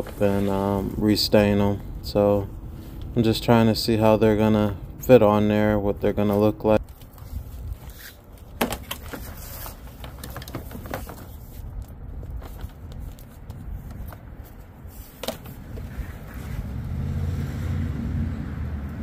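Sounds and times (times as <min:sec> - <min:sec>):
solar panel knocks and scrapes: 0:08.6 - 0:11.6.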